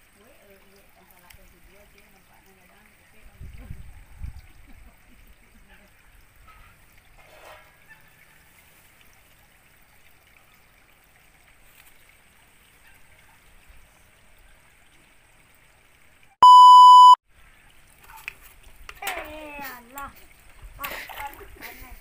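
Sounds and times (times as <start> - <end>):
electronic test tone beep: 16.4 - 17.2.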